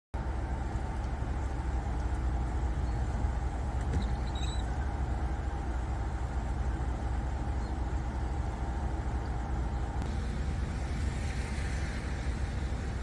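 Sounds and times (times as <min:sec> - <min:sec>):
low outdoor rumble: 0:00.2 - 0:13.0
faint high chirp: 0:03.9 - 0:04.9.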